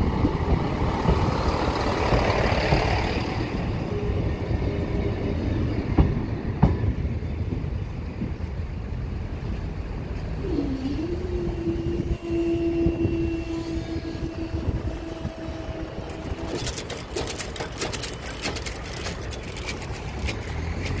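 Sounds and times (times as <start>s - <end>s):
wind rumble on microphone: 0.0s - 21.0s
barrier mechanism humming: 15.0s - 21.0s
sharp clicks and knocks: 16.1s - 21.0s.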